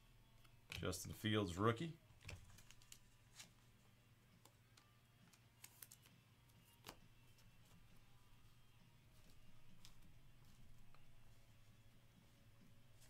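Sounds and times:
trading cards clicking: 2.2s - 3.1s, 9.2s - 11.1s.

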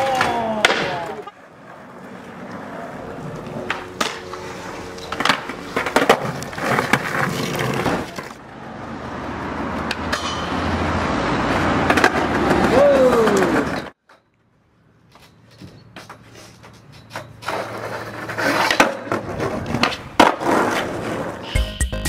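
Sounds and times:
skateboard clacks: 0.0s - 8.4s, 11.5s - 14.0s, 16.0s - 21.5s
skateboard wheels rolling on paving: 0.0s - 21.5s.

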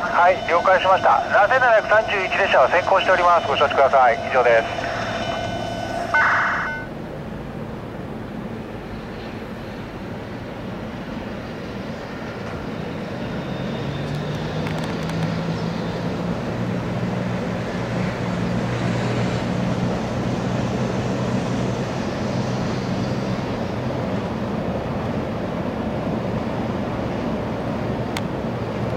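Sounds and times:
low drone: 0.0s - 12.0s
freight train rumbling past: 0.0s - 28.9s.

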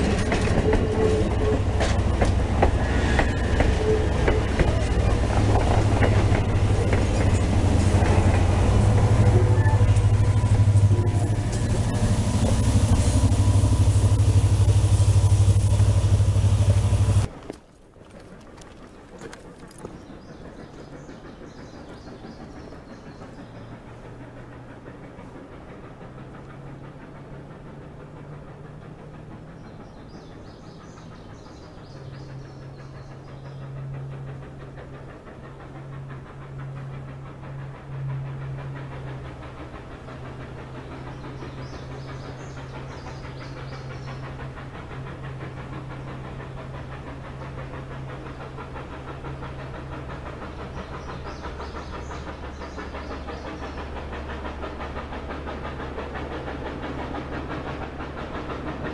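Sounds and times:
distant steam locomotive drone: 0.0s - 58.9s
birds chirping: 40.0s - 44.8s, 47.6s - 54.4s.

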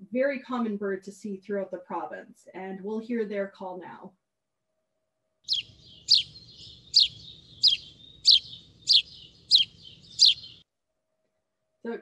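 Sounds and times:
sparrow cheeping: 5.5s - 10.6s.

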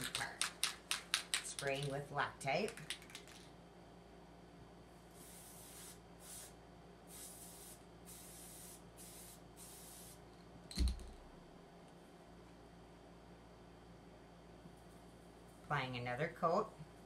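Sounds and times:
aerosol can spraying: 5.2s - 10.2s.

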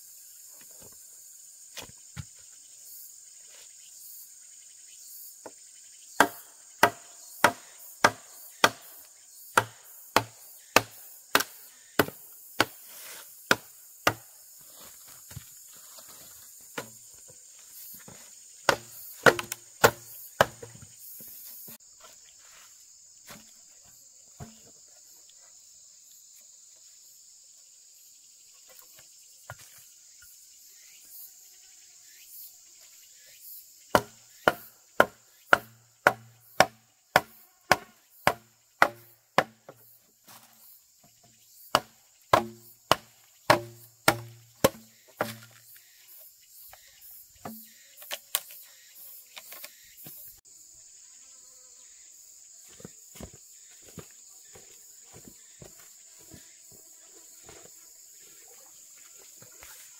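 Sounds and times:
insects buzzing: 0.0s - 59.9s
sharp blows on wood: 41.7s - 45.5s.

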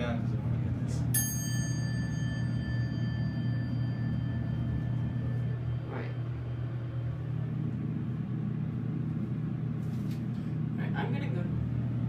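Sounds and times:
elevator car humming: 0.0s - 12.0s
elevator chime ringing: 1.1s - 7.3s.

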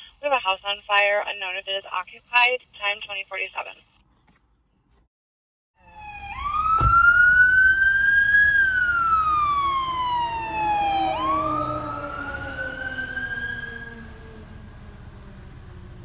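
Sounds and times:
fire engine siren wailing: 5.8s - 16.0s.

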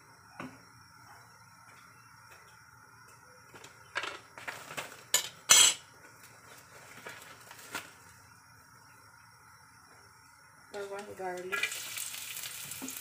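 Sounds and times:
metal cookware clattering: 5.2s - 5.9s.

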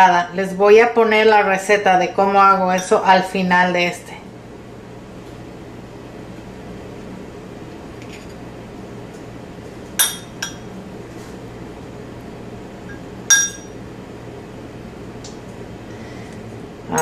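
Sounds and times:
metal fork clinking on dish: 10.0s - 10.7s, 13.3s - 13.8s.

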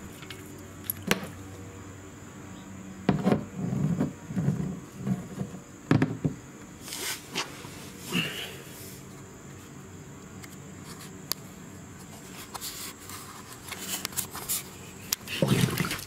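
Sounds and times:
rubbing and rustling: 11.9s - 16.0s.

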